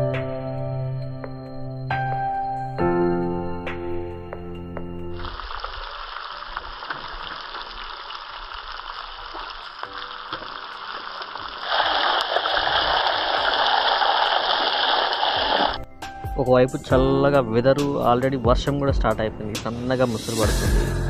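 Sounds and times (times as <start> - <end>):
background music: 0.0 - 5.2, 15.7 - 21.0
hot oil sizzling: 5.2 - 15.8.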